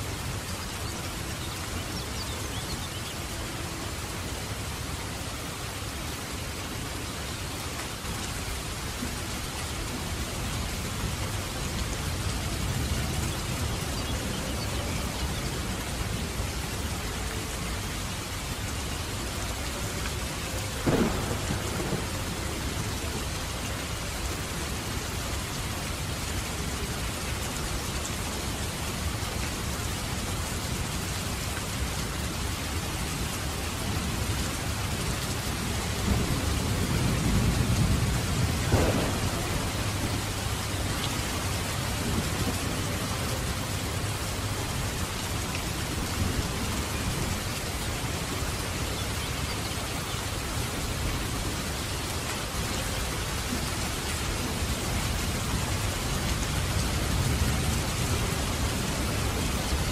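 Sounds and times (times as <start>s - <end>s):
rain falling and dripping: 0.0s - 59.9s
thunder crack: 20.8s - 22.4s, 38.6s - 40.4s
thunder rumble: 20.8s - 23.6s, 35.8s - 44.0s.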